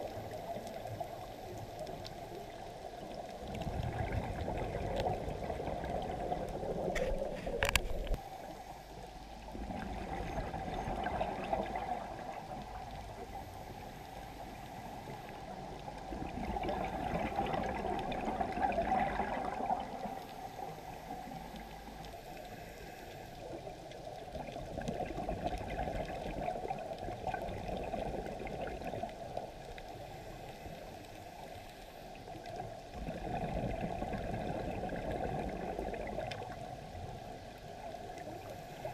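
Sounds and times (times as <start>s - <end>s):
underwater regulator bubbles: 0.0s - 8.2s, 9.5s - 22.1s, 24.2s - 30.1s, 32.9s - 37.2s.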